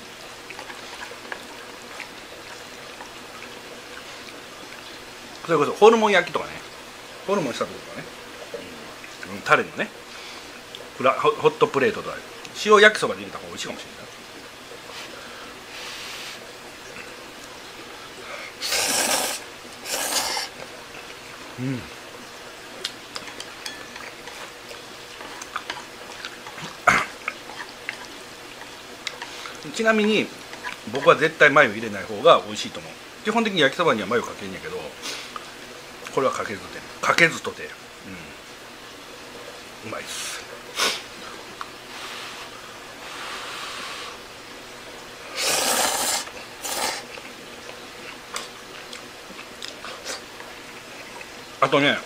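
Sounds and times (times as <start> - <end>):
noisy eating bursts: 0.0 - 11.2, 13.2 - 36.9, 37.5 - 52.0
utensils tapping on a plate: 23.2 - 24.4.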